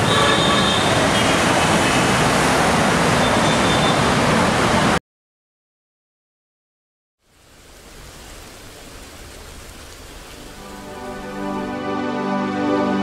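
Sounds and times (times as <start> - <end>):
city traffic noise: 0.0 - 5.0.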